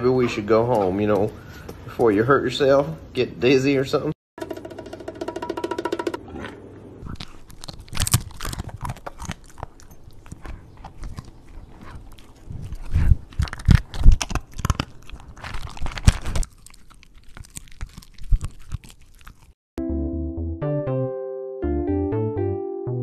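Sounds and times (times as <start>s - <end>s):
dog crunching hard food: 7.0s - 19.6s.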